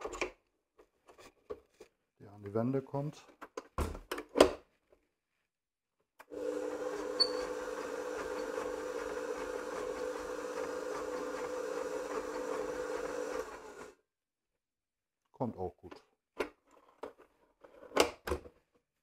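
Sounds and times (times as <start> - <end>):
stand mixer humming: 6.3 - 14.0.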